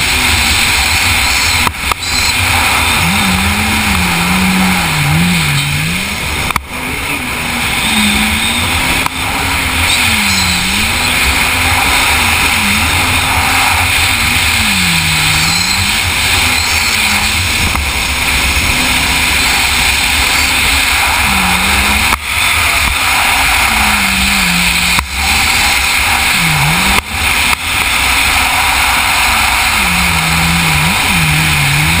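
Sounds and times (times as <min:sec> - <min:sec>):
watercraft engine running hard: 0:00.0 - 0:32.0
wind and water rushing: 0:00.0 - 0:32.0.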